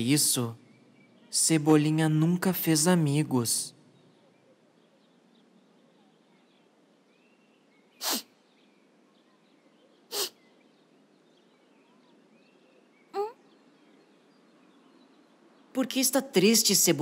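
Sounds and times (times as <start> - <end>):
cartoon sniffling sobs: 8.0 - 8.3, 10.1 - 10.4.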